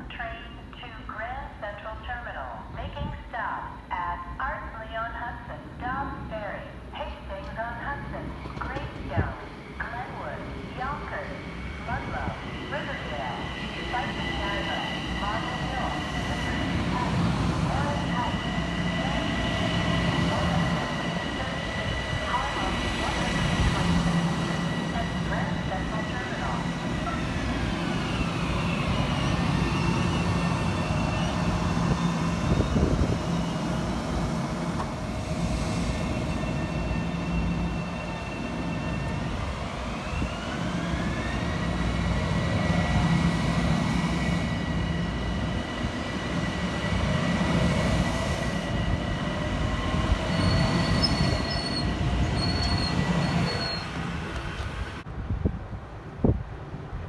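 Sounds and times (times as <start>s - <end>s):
train wheels rumbling on rail: 7.2s - 57.0s
high squeals: 50.3s - 54.0s.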